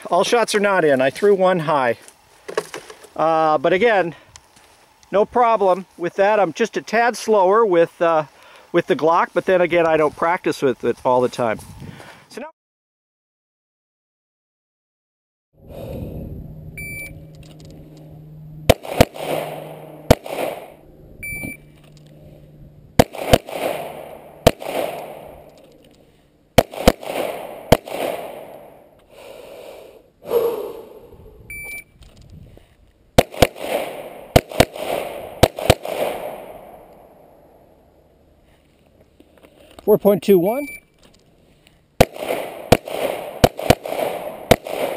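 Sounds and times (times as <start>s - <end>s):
shot timer beeps: 16.8s - 17.3s, 21.2s - 21.7s, 31.5s - 32.0s, 40.6s - 40.9s
pistol shots with echo: 18.7s - 20.8s, 23.0s - 25.5s, 26.6s - 28.8s, 33.2s - 37.0s, 42.0s - 44.9s.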